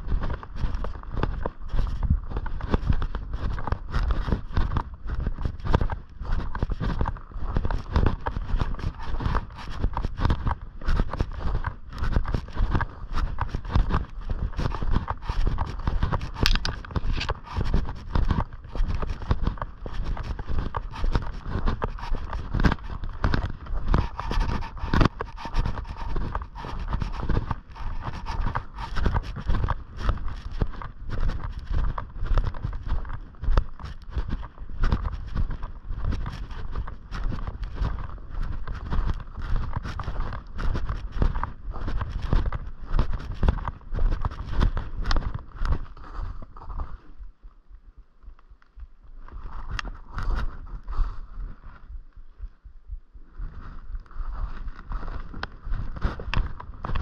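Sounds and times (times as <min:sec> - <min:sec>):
footsteps on snowy gravel: 0:00.0 - 0:47.4, 0:48.7 - 0:52.2, 0:53.3 - 0:57.0.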